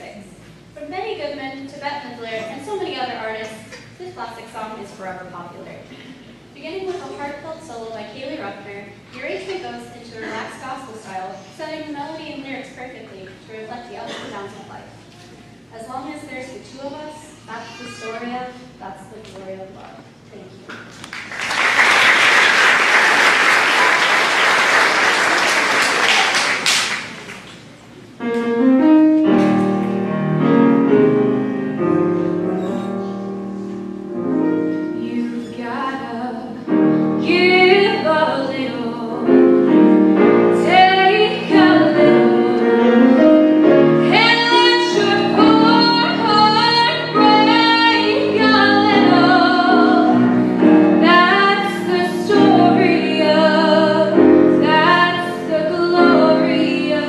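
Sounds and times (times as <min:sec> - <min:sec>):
audience applauding: 0:20.8 - 0:27.7
instrumental accompaniment: 0:28.2 - 0:57.0
women singing: 0:35.0 - 0:36.6, 0:40.6 - 0:43.1, 0:44.1 - 0:50.2, 0:51.0 - 0:57.0.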